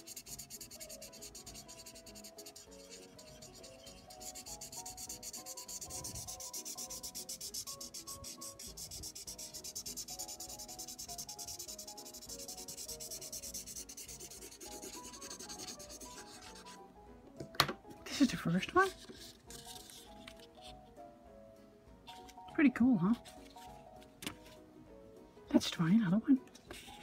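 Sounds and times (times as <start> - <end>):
marker pen scribbling on paper: 0.0 - 16.8, 18.8 - 20.5.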